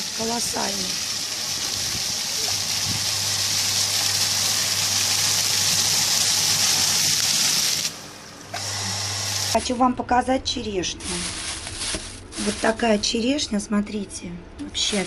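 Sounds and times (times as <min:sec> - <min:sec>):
fountain water splashing on stone: 0:00.0 - 0:07.9.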